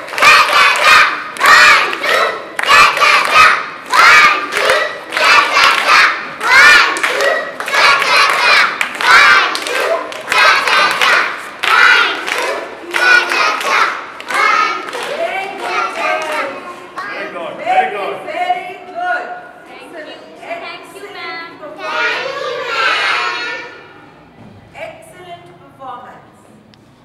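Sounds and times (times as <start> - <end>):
rhythmic hand clapping: 0.0 - 16.6
children chanting in unison: 0.0 - 17.1, 21.8 - 24.0.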